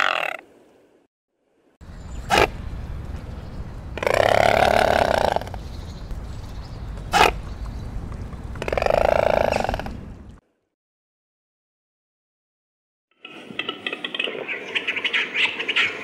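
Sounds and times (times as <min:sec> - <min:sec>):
low steady rumble: 0:01.8 - 0:10.4.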